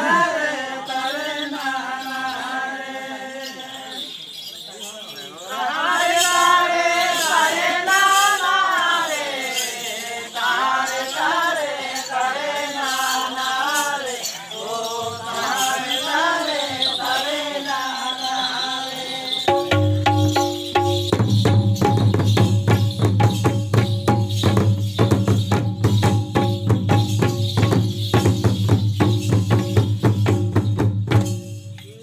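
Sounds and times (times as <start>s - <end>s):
men singing together: 0.0s - 4.2s, 5.4s - 19.8s
drum beats: 19.5s - 32.0s.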